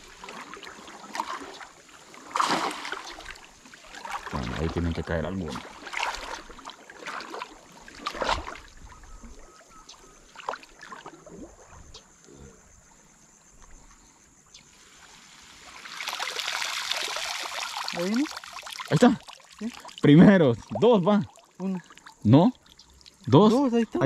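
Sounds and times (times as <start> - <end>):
water pouring and dripping from net: 0.0 - 8.7, 14.7 - 23.5
small splashes and knocks: 0.0 - 8.8, 10.3 - 11.8, 15.6 - 23.3.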